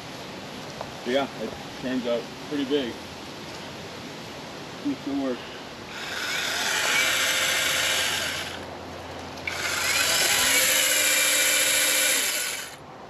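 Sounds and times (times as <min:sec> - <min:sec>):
battery chainsaw motor whining: 0:05.9 - 0:08.6, 0:09.4 - 0:12.8.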